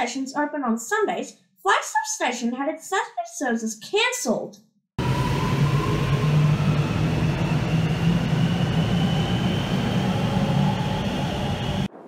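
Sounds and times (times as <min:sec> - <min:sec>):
train motor whine rising: 0:05.0 - 0:11.9
train wheels rumbling on rails: 0:05.0 - 0:11.9.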